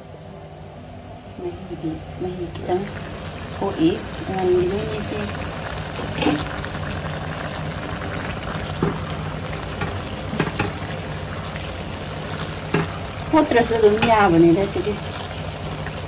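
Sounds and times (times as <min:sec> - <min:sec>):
curry bubbling and sizzling: 0:01.4 - 0:16.0
spatula knocking against pot: 0:09.8 - 0:10.8, 0:12.7 - 0:13.0.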